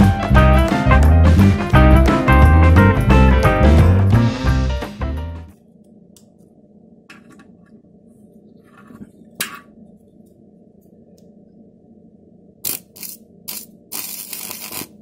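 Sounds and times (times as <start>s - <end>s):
electric arc crackling: 12.6s - 15.0s.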